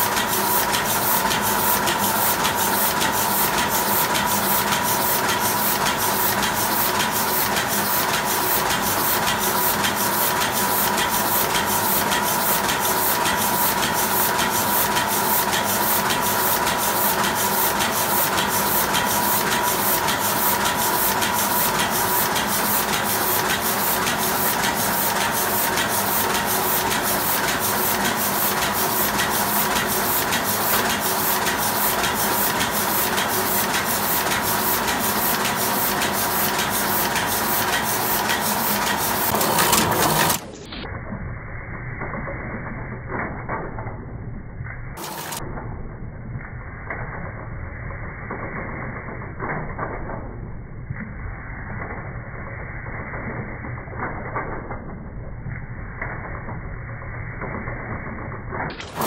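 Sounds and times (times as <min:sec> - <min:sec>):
printing press clatter: 0:00.0 - 0:40.6, 0:45.0 - 0:45.4, 0:58.0 - 0:59.0
printing press hum and whine: 0:00.0 - 0:43.8, 0:44.9 - 0:45.7, 0:55.6 - 0:59.0.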